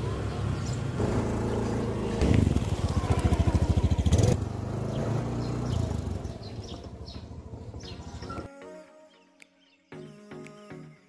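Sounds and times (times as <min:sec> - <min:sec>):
motor scooter engines: 0:00.0 - 0:08.5.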